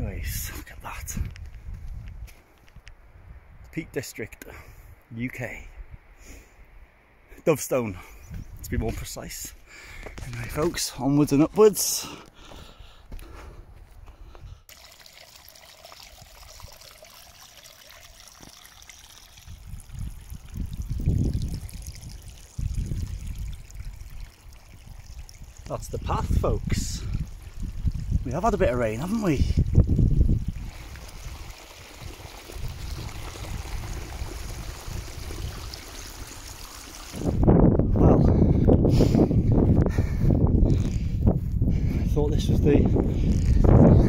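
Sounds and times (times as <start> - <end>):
water trickling over rocks: 14.7 - 37.7.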